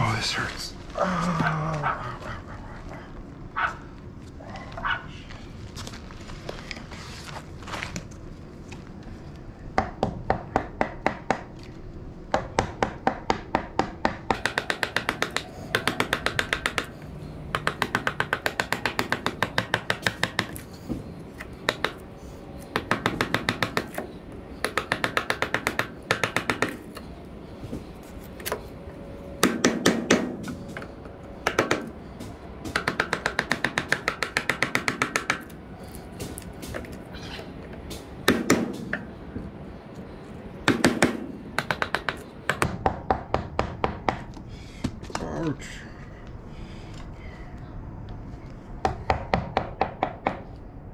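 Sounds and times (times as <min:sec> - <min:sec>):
mallet striking chisel into wood: 0:12.4 - 0:16.9.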